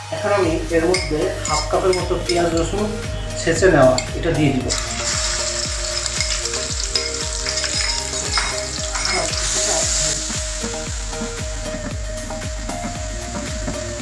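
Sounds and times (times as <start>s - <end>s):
onion and garlic sizzling in oil: 0.2s - 3.2s, 4.7s - 12.2s.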